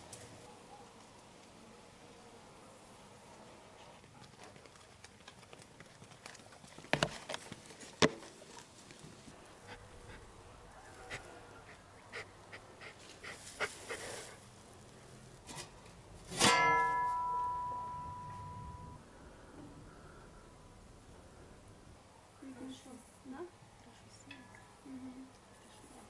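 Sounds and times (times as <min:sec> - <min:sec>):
sharp ringing strike: 0:16.4 - 0:19.0.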